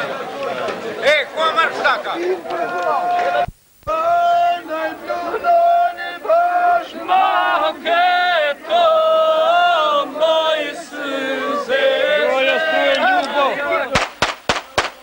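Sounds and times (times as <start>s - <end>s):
group of voices chanting: 2.4s - 14.0s.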